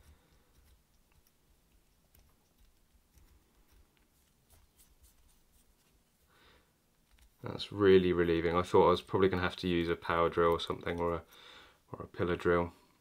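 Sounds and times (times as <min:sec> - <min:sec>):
faint scratchy clicks: 0:06.9 - 0:07.5.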